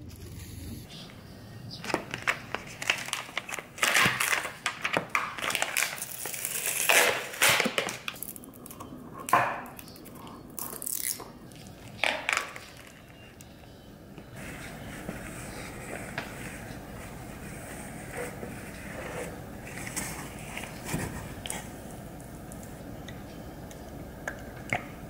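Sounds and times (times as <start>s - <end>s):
plastic packaging crinkling: 1.8s - 8.8s, 9.7s - 13.3s.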